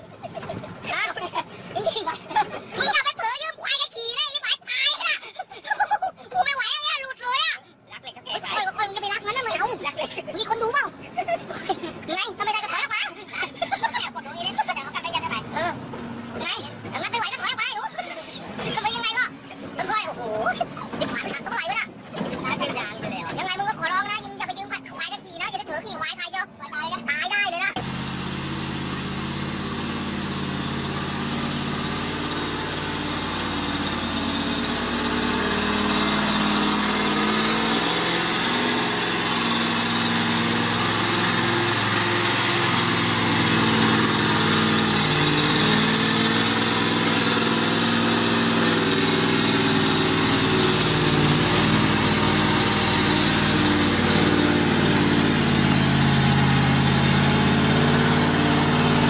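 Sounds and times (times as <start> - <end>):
heavy diesel truck engine: 13.2 - 24.7, 27.8 - 59.0.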